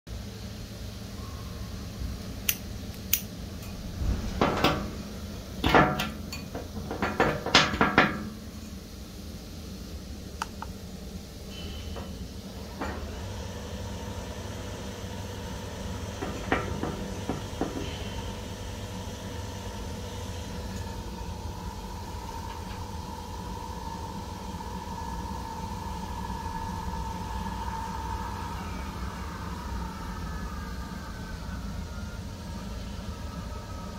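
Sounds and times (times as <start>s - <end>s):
pump whining: 3.7s - 8.4s, 11.5s - 33.9s.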